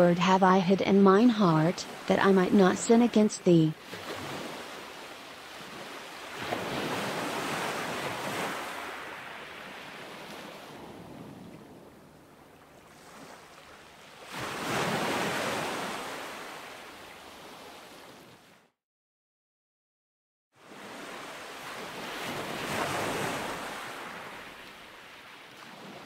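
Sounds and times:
waves surging on rocky shore: 1.8s - 11.0s, 20.9s - 26.0s.

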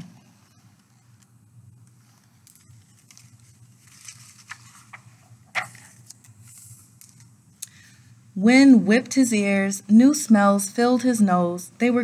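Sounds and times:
low steady hum: 0.0s - 12.0s
paper pages turning: 1.9s - 7.3s.

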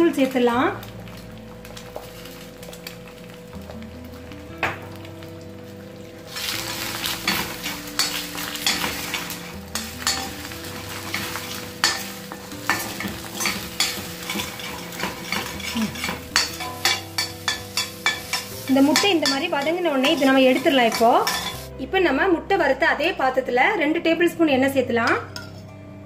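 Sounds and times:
eggs sizzling in oil: 0.0s - 21.8s
spatula scraping and tapping pan: 6.4s - 21.7s, 25.3s - 25.7s.

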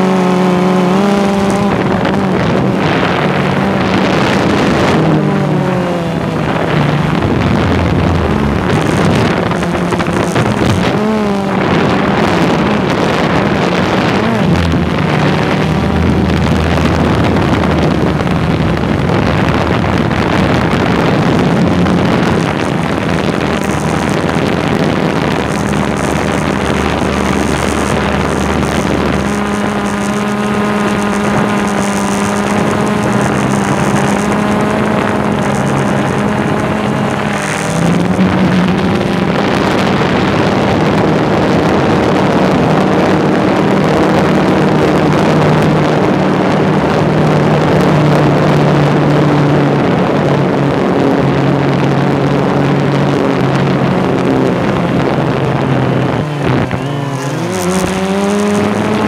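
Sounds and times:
rushing noise: 0.0s - 59.0s.

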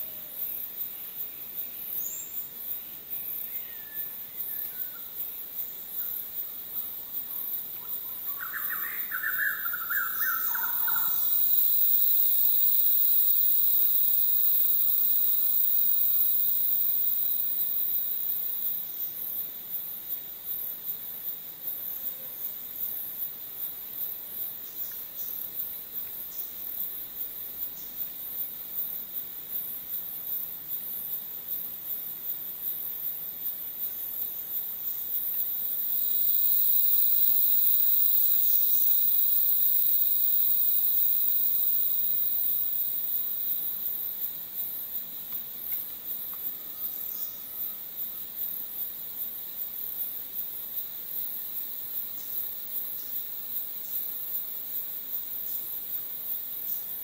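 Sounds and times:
insect chorus chirring: 0.0s - 57.0s
loud insect buzz: 8.4s - 19.0s, 33.4s - 45.0s.

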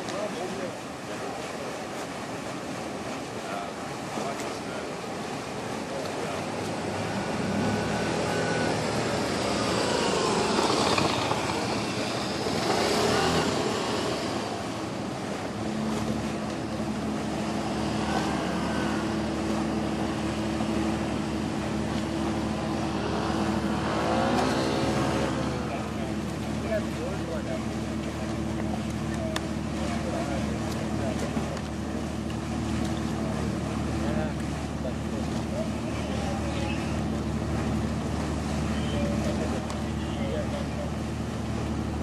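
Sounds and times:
low engine hum: 0.0s - 42.0s
outdoor noise: 0.0s - 42.0s
passing engine note: 6.8s - 14.8s, 15.6s - 26.8s.

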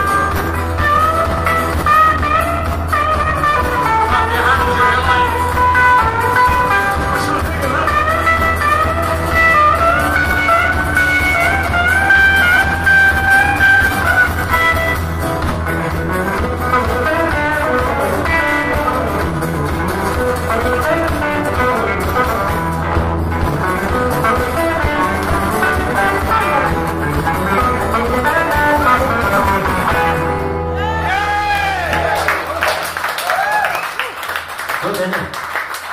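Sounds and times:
live band playing a fast reel: 0.0s - 35.9s
audience cheering: 30.7s - 35.9s.

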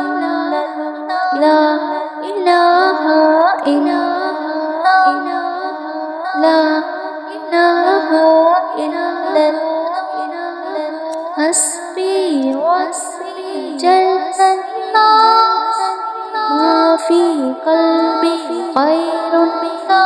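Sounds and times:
high-pitched voice singing: 10.2s - 20.0s.

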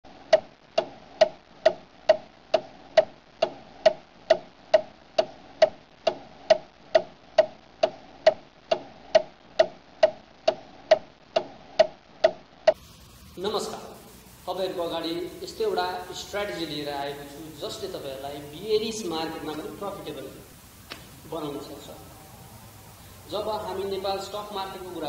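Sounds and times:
clock-like ticks with ring: 0.3s - 12.8s.

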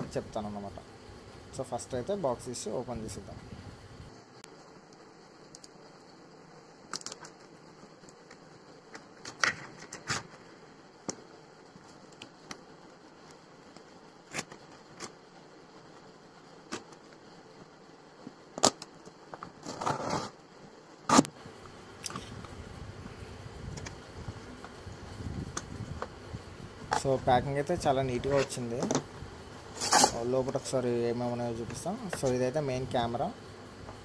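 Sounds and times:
ripping scrape of cardboard: 19.5s - 20.4s, 29.7s - 30.2s
blade slitting cardboard box: 19.6s - 20.4s.

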